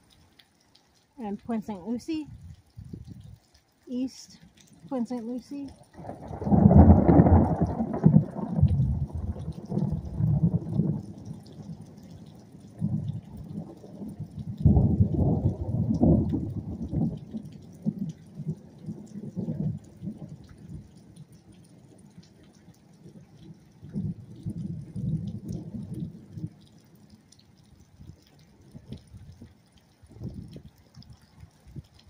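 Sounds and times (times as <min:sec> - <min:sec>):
wind gusting on microphone: 0:02.2 - 0:03.4, 0:06.0 - 0:11.1, 0:12.8 - 0:17.3, 0:27.9 - 0:32.0.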